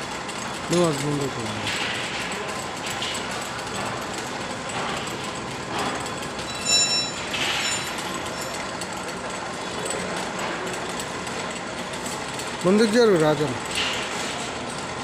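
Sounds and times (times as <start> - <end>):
electric chain hoist motor: 0.0 - 15.0
brief high ringing: 6.5 - 8.0.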